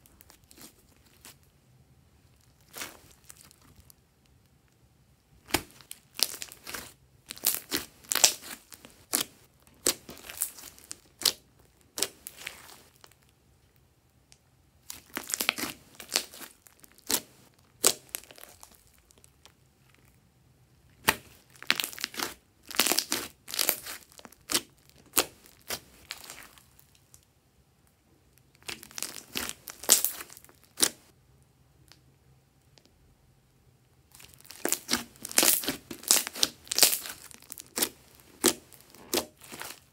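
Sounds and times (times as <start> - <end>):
slime squished by hand: 2.3 - 3.9, 5.4 - 13.2, 14.8 - 19.5, 20.9 - 26.9, 28.6 - 31.1, 34.1 - 39.9.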